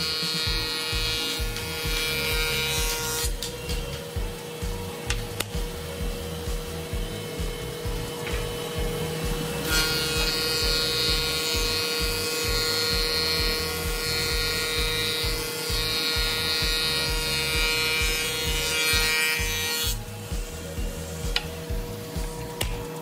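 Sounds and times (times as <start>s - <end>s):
low machine rumble: 3.4s - 11.5s.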